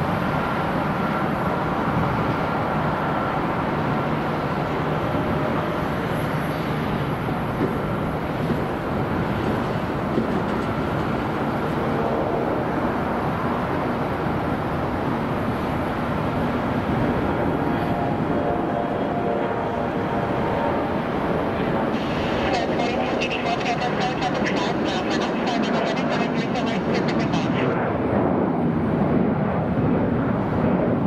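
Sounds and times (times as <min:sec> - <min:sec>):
jet engines roaring: 0:00.0 - 0:31.0.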